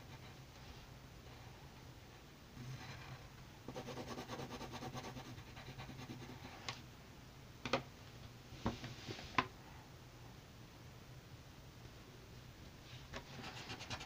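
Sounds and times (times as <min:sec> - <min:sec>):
pencil scratching on paper: 0:03.7 - 0:06.5, 0:13.3 - 0:14.0.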